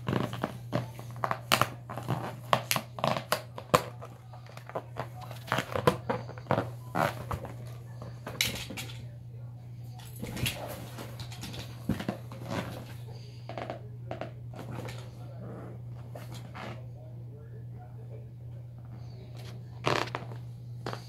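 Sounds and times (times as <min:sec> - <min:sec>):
rubber balloon squeaks: 0:00.0 - 0:03.7, 0:05.5 - 0:07.5.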